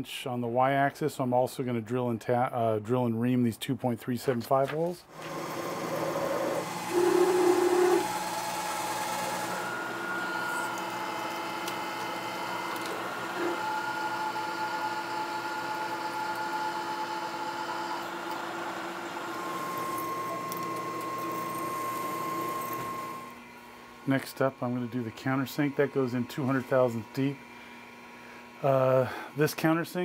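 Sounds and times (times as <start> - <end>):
high machine tone: 5.1 - 23.4
metal cutting: 5.1 - 23.5
milling machine spindle whine: 5.1 - 30.0.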